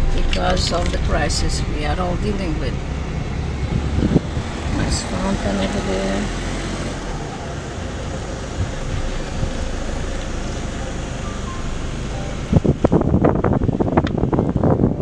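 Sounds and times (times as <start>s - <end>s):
car road noise: 0.0s - 15.0s.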